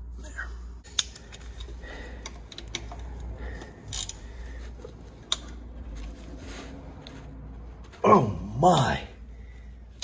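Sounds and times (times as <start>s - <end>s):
wrench clicking on metal nut: 3.8s - 4.2s.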